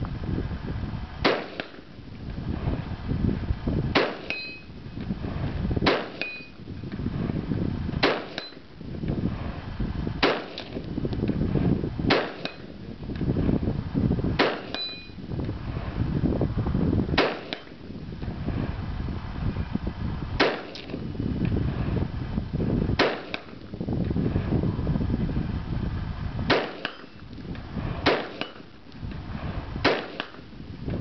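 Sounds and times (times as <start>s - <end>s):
rifle shots: 1.2s - 1.9s, 3.9s - 4.7s, 5.8s - 6.5s, 8.0s - 8.7s, 10.2s - 10.8s, 12.1s - 12.8s, 14.4s - 15.2s, 17.2s - 17.8s, 20.4s - 21.0s, 23.0s - 23.6s, 26.5s - 27.2s, 28.0s - 28.7s, 29.8s - 30.5s
bullet clanging on steel target: 4.2s - 4.7s, 6.2s - 6.6s, 8.3s - 8.6s, 12.4s - 12.7s, 14.5s - 15.2s, 26.7s - 27.2s.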